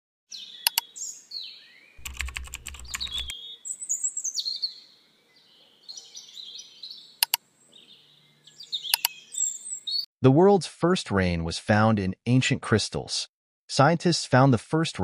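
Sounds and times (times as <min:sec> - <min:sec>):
mouse click: 0:00.6 - 0:00.9, 0:02.0 - 0:03.3, 0:08.9 - 0:09.2
high chirping gliding tones: 0:02.0 - 0:03.3, 0:08.6 - 0:09.6
typing-like clicks: 0:02.0 - 0:03.3, 0:08.9 - 0:09.1.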